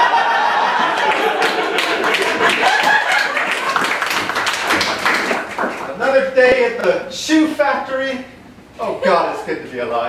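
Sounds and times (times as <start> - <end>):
audience clapping: 0.0 - 6.0.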